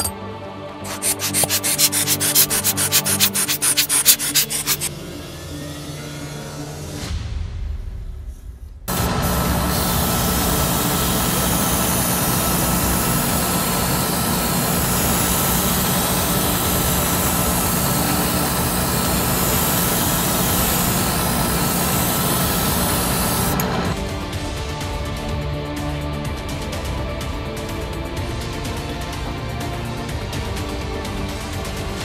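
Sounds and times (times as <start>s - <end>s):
airbrush hissing: 0.9s - 5.8s, 8.9s - 23.6s
spray booth exhaust fan hum: 0.9s - 6.7s, 8.9s - 24.0s.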